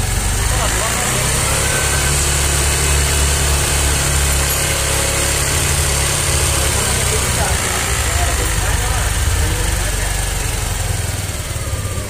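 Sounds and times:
scooter engine idling: 0.0 - 12.0.

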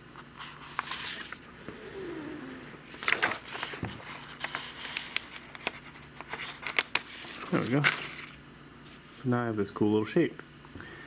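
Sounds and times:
plastic crackling: 2.9 - 8.3.

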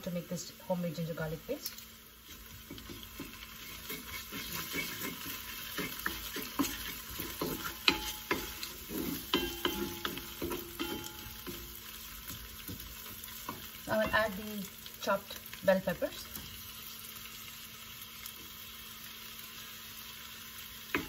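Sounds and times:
light sizzle of frying: 0.0 - 21.0
spatula scraping a wok: 2.2 - 14.4.

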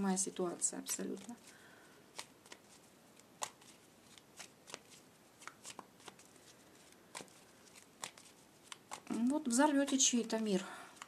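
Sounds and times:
cards being shuffled: 0.8 - 10.4.

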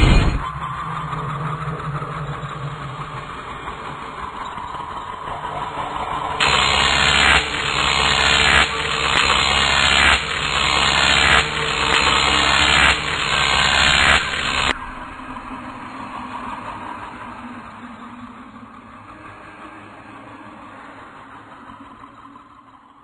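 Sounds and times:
harsh rushing noise: 0.0 - 0.6, 6.2 - 15.8.

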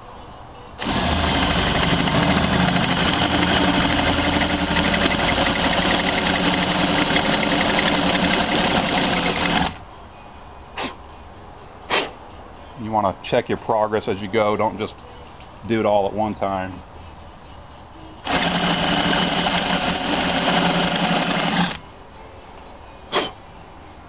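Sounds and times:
cordless drill cutting metal: 0.8 - 9.8, 18.2 - 21.8.

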